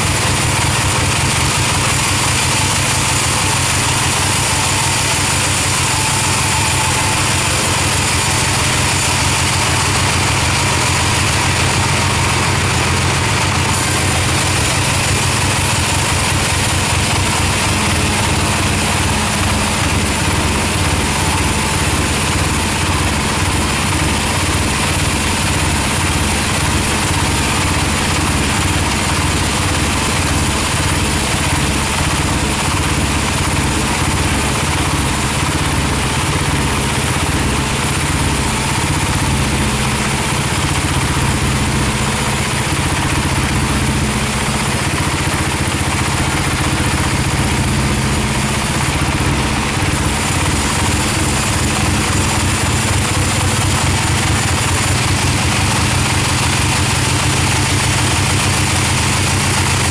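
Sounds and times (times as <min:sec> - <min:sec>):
band sawmill drone: 0:00.0 - 0:59.9
saw blade cutting log hiss: 0:13.7 - 0:22.7.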